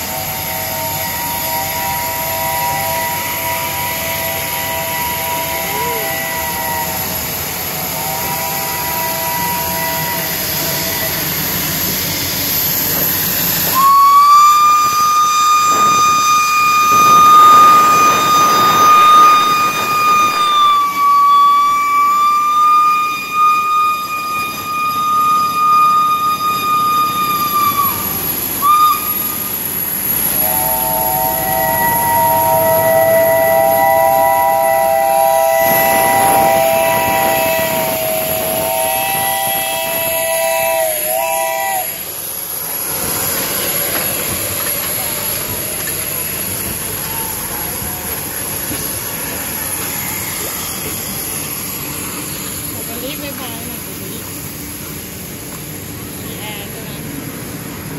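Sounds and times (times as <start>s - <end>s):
steam locomotive whistle chord: 0.0s - 43.2s
high steam whistle: 0.0s - 56.7s.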